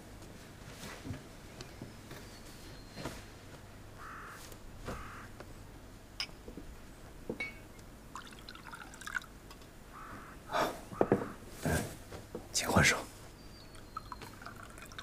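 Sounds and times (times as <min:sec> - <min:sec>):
trickling sound: 0:08.2 - 0:09.3, 0:14.0 - 0:15.0.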